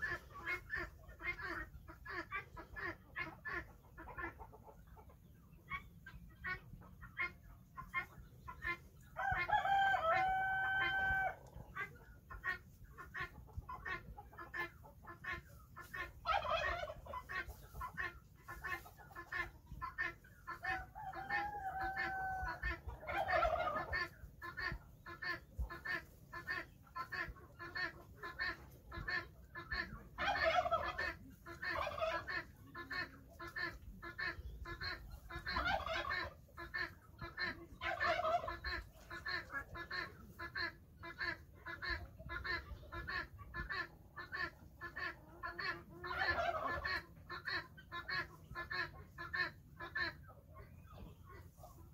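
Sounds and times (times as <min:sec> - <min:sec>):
hens clucking: 0:00.0 - 0:51.9
rooster crowing: 0:09.2 - 0:11.4.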